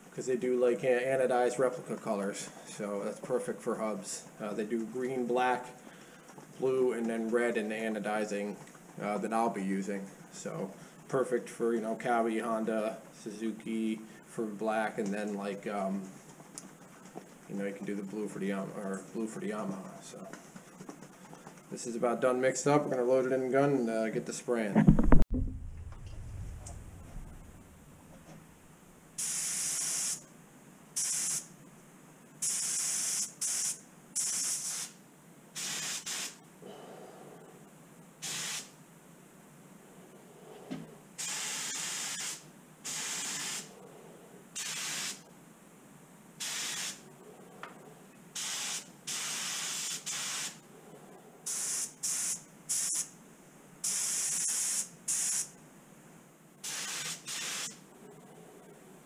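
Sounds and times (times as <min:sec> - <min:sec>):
spray gun hissing bursts: 0:29.2 - 0:30.2, 0:31.0 - 0:31.5, 0:32.4 - 0:35.0, 0:35.6 - 0:36.4, 0:38.2 - 0:38.8, 0:41.2 - 0:43.7, 0:44.6 - 0:45.3, 0:46.4 - 0:47.0, 0:48.4 - 0:50.6, 0:51.5 - 0:53.1, 0:53.8 - 0:55.5, 0:56.6 - 0:57.8.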